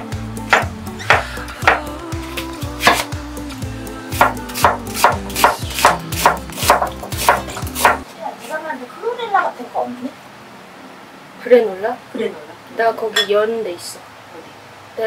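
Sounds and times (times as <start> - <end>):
background music: 0.0 - 8.0
knife chopping on wooden board: 0.5 - 1.9, 2.8 - 3.1, 4.2 - 8.0.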